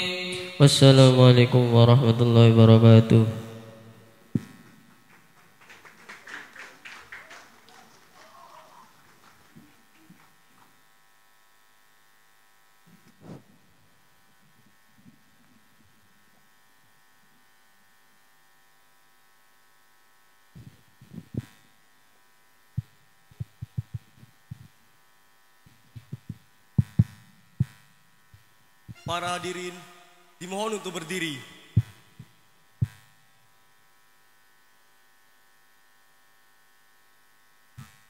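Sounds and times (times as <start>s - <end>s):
electrical hum: 0.0s - 38.0s
low thumps on microphone: 22.8s - 24.8s, 25.9s - 27.8s.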